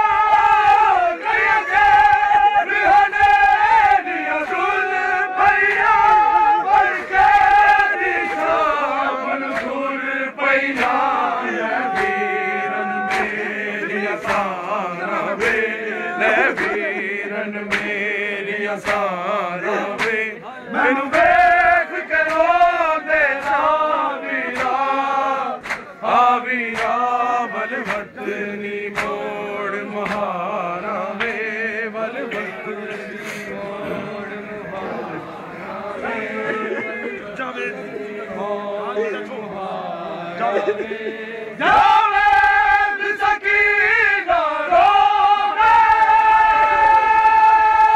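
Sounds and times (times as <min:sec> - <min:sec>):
men chanting in unison: 0:00.0 - 0:47.9
chest-beating slaps: 0:10.7 - 0:11.0, 0:16.4 - 0:18.1, 0:18.8 - 0:19.1, 0:19.9 - 0:20.3, 0:24.5 - 0:24.8, 0:25.6 - 0:25.9, 0:28.9 - 0:29.2, 0:30.0 - 0:30.3.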